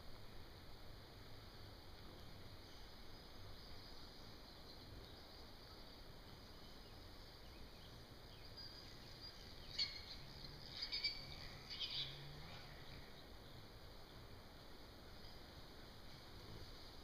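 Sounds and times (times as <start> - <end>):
insect hum: 0.0 - 17.0
bird chirps: 6.5 - 13.6.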